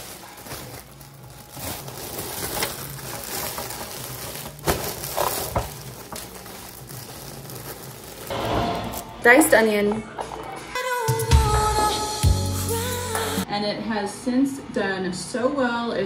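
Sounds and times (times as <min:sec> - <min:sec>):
plastic liner crinkling: 0:00.0 - 0:08.3.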